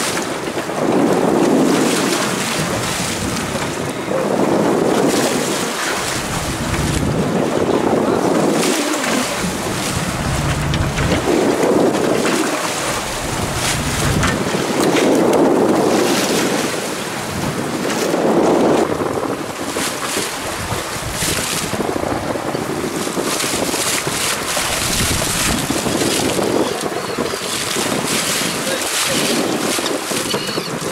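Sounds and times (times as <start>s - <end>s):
sea splashing against boat: 0.0s - 30.9s
wind buffeting microphone: 0.0s - 30.9s.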